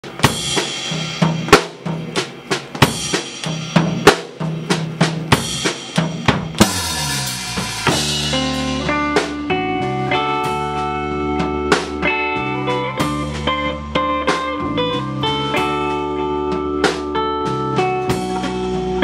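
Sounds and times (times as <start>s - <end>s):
band playing held chords: 0.0s - 19.0s
drum kit groove: 0.0s - 19.0s
cymbal crash: 6.6s - 8.9s.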